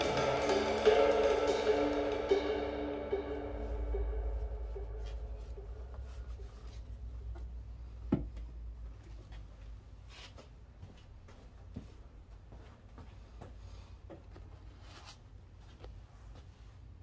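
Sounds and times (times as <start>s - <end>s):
low steady rumble: 0.0s - 10.0s.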